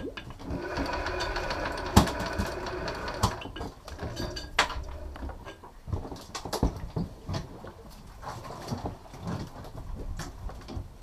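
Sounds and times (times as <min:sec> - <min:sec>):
fishing reel motor whining: 0:00.5 - 0:04.1.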